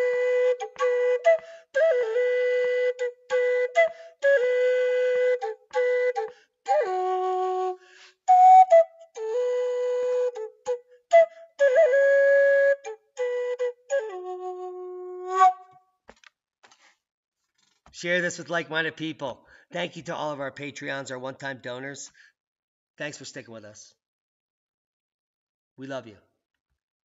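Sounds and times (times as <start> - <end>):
bamboo flute melody: 0.0 - 15.8.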